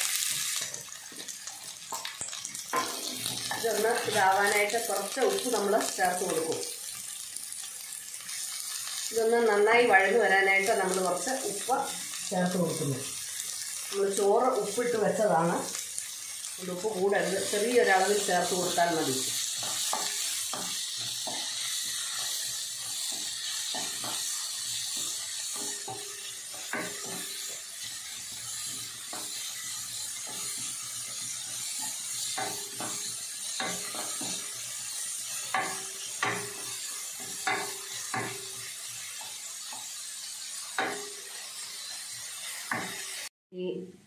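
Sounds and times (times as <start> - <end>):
onions sizzling in pan: 0.0 - 43.3
spatula knocking metal pan: 19.6 - 21.5.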